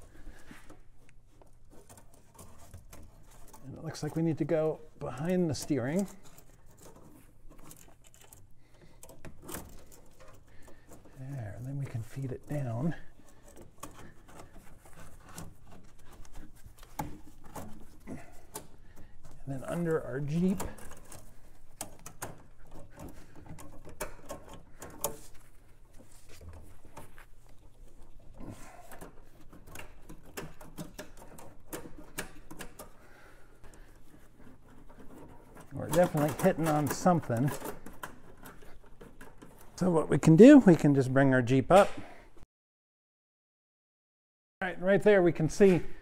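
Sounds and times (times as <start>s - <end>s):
metal tubing clicking and knocking: 0.0s - 39.9s.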